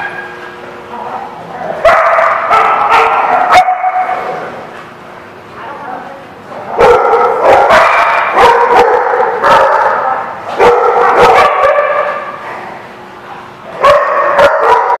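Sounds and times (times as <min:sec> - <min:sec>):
dogs barking: 0:01.7 - 0:05.0, 0:06.6 - 0:12.9, 0:13.7 - 0:15.0.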